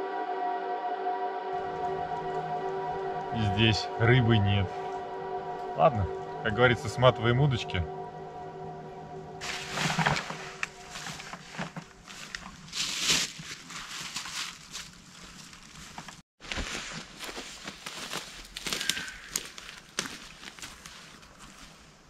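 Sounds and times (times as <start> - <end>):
footsteps crunching through leaves: 9.4 - 22.0.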